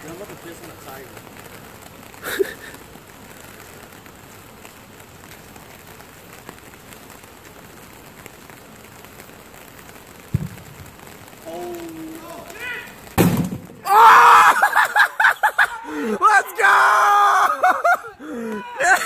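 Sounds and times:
steady rain falling: 0:00.0 - 0:19.0
low thud: 0:10.3 - 0:10.9, 0:13.2 - 0:13.8.

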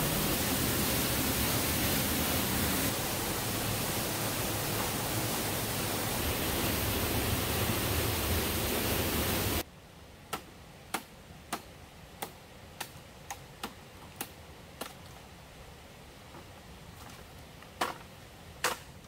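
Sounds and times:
waterfall roaring: 0:00.0 - 0:09.6.

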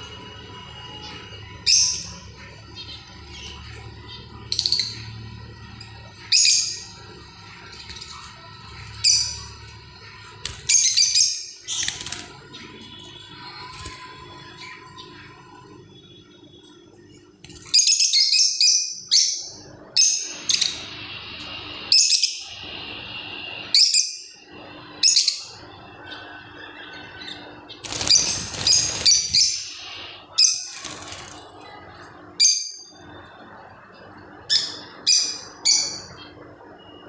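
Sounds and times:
lovebirds chirping: 0:27.0 - 0:33.4.

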